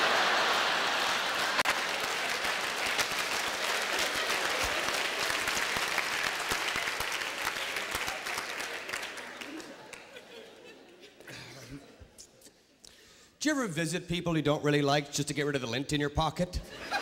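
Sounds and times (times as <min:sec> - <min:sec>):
audience applauding: 0:00.0 - 0:10.7.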